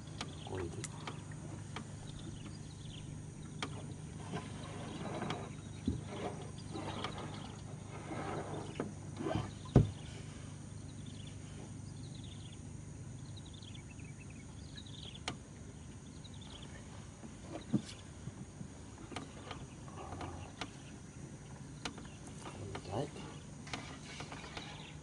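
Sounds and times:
fishing gear rustling and scraping: 0:04.1 - 0:09.6, 0:22.2 - 0:25.0
knock on wooden hull: 0:09.7 - 0:10.0.

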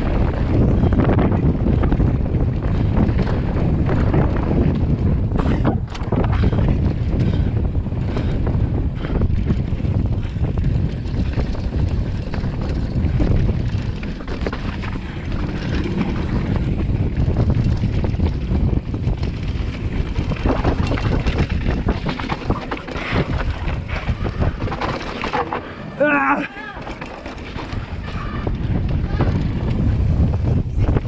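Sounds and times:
bike tyres rumbling on dirt: 0:00.0 - 0:31.0
wind buffeting microphone: 0:00.0 - 0:31.0.

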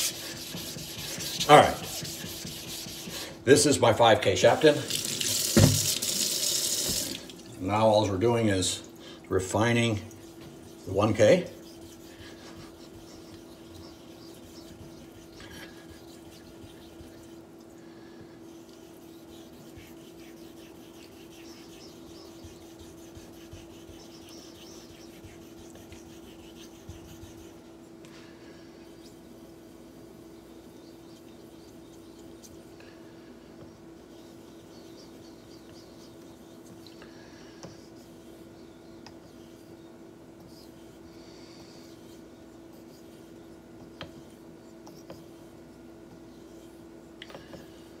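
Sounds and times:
fingertips rubbing wet whetstone: 0:00.0 - 0:03.3, 0:09.5 - 0:27.7, 0:33.5 - 0:37.0, 0:37.6 - 0:39.8, 0:41.6 - 0:46.9
steady hum: 0:00.0 - 0:48.0.

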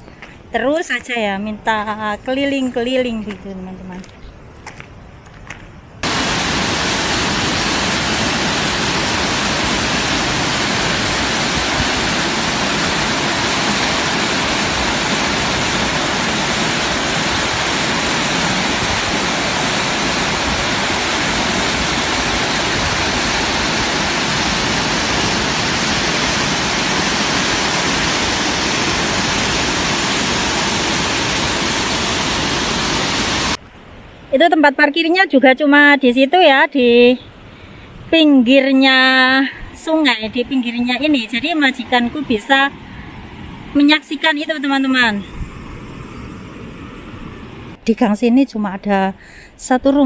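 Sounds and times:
river water rushing over weir: 0:06.0 - 0:33.6, 0:45.5 - 0:47.8.

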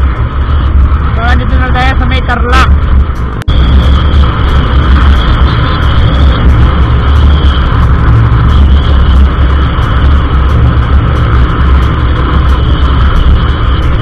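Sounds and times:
scooter engine and tyre noise: 0:00.0 - 0:14.0.

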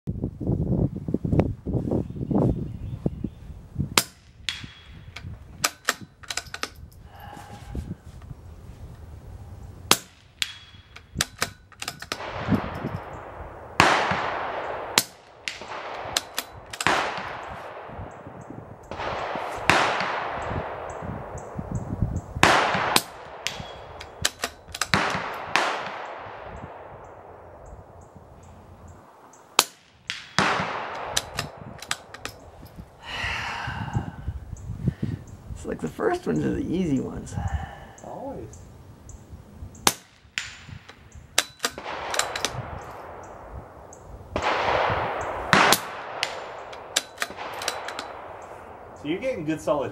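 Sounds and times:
rifle shots cracking: 0:09.9 - 0:21.4, 0:22.4 - 0:27.6, 0:29.1 - 0:32.5, 0:39.8 - 0:49.8.

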